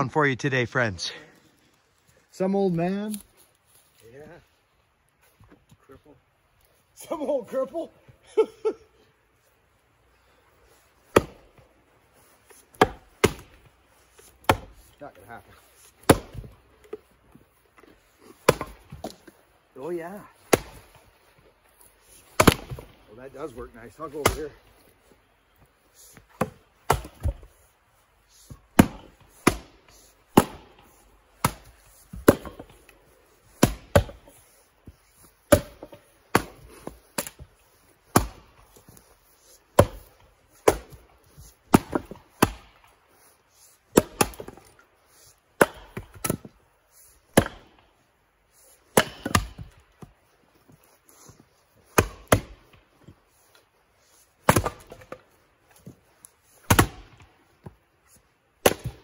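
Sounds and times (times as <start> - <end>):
axe chopping firewood: 10.9 - 24.9, 25.6 - 27.7, 28.3 - 57.9, 58.5 - 59.0.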